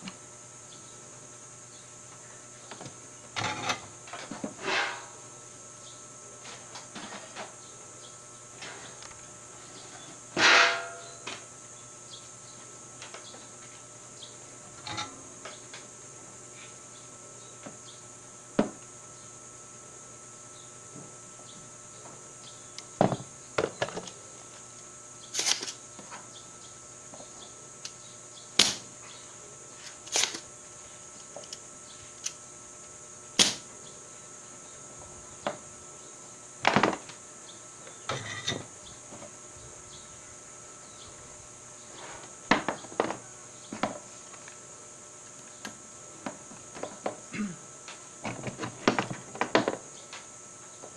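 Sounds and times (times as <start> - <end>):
high insect drone: 0.0 - 50.9
desoldering pump snapping: 28.6 - 28.8, 29.8 - 30.4, 33.4 - 33.7.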